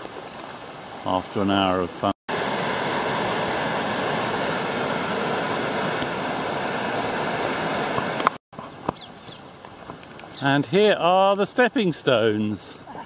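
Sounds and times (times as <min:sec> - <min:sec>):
water rushing over weir: 0:02.3 - 0:08.4.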